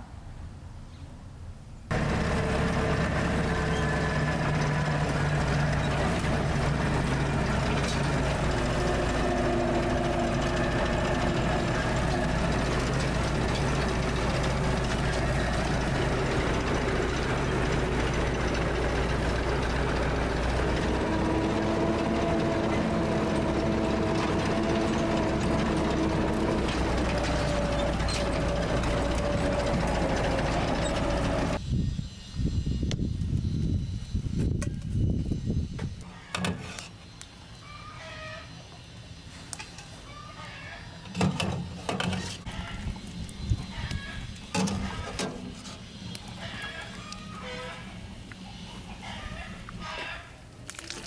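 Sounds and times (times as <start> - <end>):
engine running: 1.9 - 31.6.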